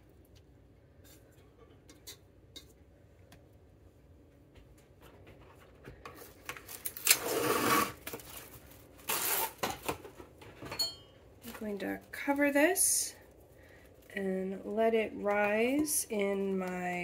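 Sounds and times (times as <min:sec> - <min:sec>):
plastic wrap crinkling: 0:06.1 - 0:10.4, 0:11.4 - 0:17.0.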